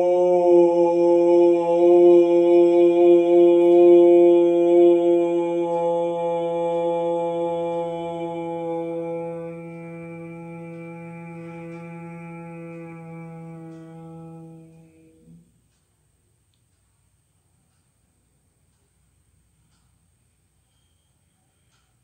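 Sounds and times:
man humming chant: 0:00.0 - 0:15.6.

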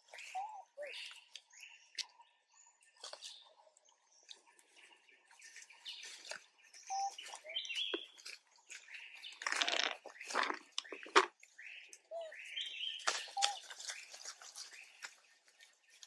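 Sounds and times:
bird chirps and whistled calls: 0:00.0 - 0:03.5, 0:05.4 - 0:08.2, 0:08.8 - 0:15.1.

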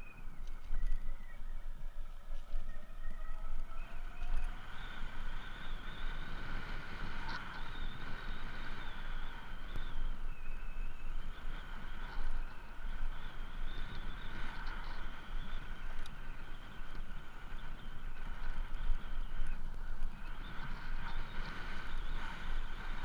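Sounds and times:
wind: 0:00.0 - 0:23.0.

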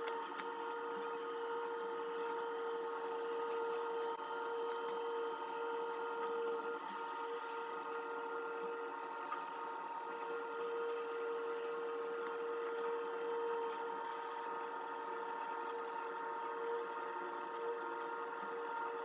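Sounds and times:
curb machine whining drone: 0:00.0 - 0:19.0.

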